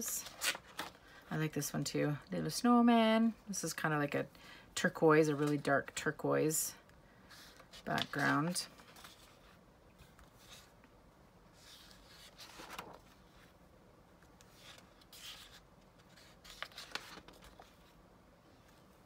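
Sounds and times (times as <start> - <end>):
paper sheets rustling: 7.3 - 10.8, 11.5 - 13.5, 14.4 - 18.0.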